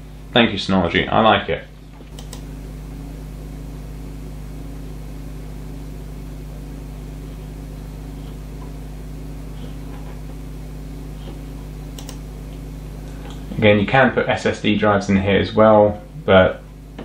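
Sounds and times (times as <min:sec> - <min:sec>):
low electrical hum: 0:00.0 - 0:17.0
faint clicks: 0:02.0 - 0:02.4, 0:11.9 - 0:12.6.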